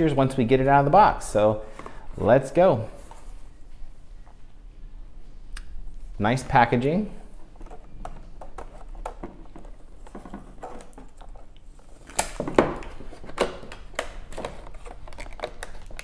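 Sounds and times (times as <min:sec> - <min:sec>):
plastic packaging crinkling: 0:07.6 - 0:16.0
sharp plastic snaps: 0:12.0 - 0:16.0.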